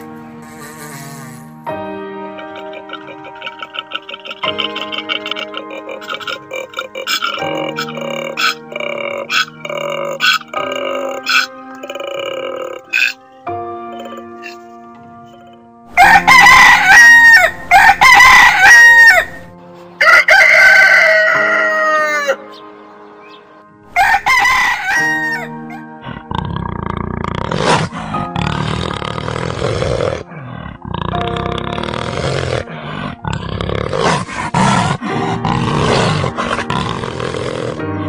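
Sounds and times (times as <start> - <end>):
background music: 0.0 - 38.0
big cat growling: 2.4 - 13.3, 26.0 - 38.0
rooster crowing: 15.9 - 22.6, 23.9 - 25.6.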